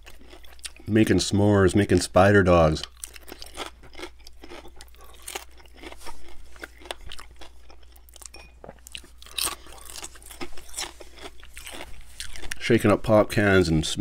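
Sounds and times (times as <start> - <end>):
bacon crunching while chewed: 0.0 - 1.1, 2.7 - 12.8.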